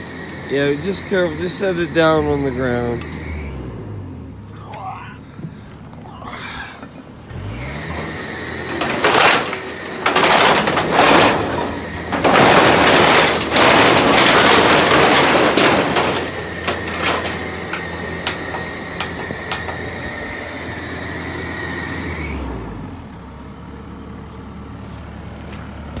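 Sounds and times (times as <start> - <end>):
excavator engine revving: 0.0 - 23.4
hydraulic whine: 7.2 - 22.9
debris crashing and crunching: 7.5 - 21.1
scattered knocks: 8.7 - 20.0.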